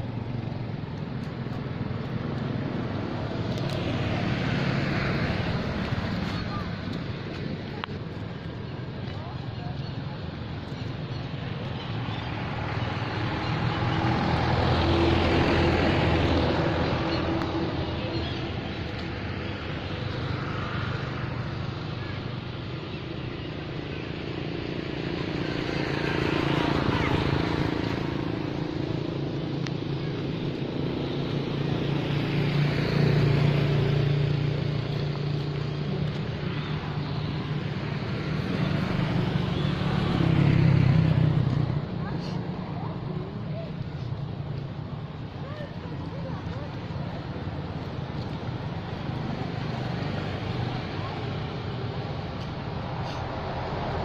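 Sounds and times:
vehicle passing with rushing noise: 0.0 - 8.2, 11.3 - 22.7, 23.8 - 54.0.

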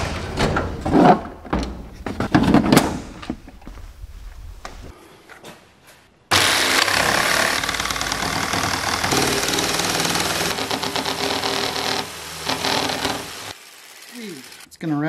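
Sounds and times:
jigsaw cutting plastic pipe: 6.3 - 14.7.

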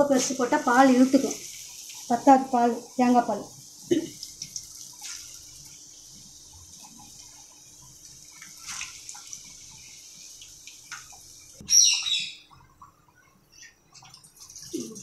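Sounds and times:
batter sizzling in hot oil: 0.0 - 11.6.

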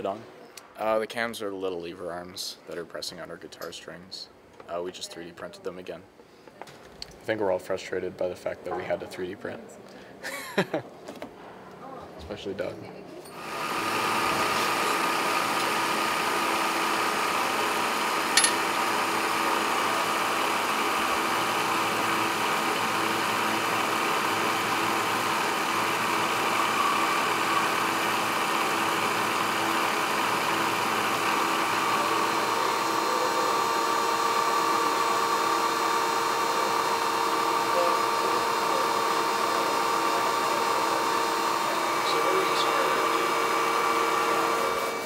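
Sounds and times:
drill press motor running: 13.3 - 45.0.

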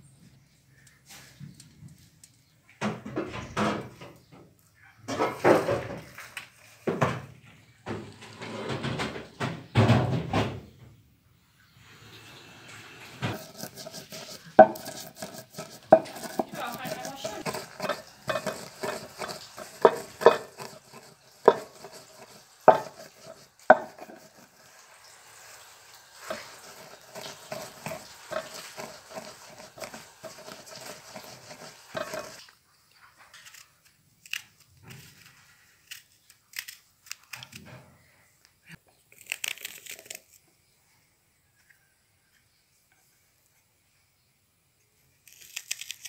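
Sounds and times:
nuts crunching and grinding: 13.2 - 24.8, 25.4 - 32.6, 33.4 - 37.7, 38.8 - 40.5, 45.2 - 46.0
crusher knocking on wooden board: 17.3 - 24.2.

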